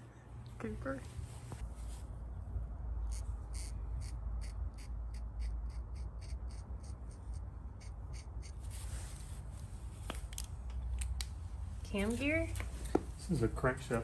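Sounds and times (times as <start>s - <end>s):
low steady hum: 0.0s - 14.0s
marker scratching on metal: 3.1s - 8.7s.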